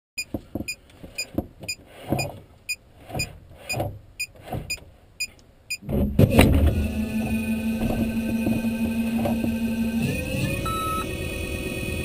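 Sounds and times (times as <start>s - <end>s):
low rumbles: 4.9s - 12.0s
short electronic beeps: 10.6s - 11.1s.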